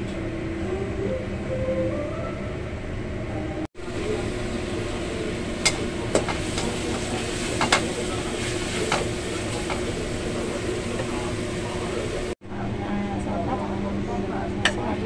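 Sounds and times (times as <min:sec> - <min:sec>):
vegetables sizzling in a wok: 0:03.8 - 0:12.4.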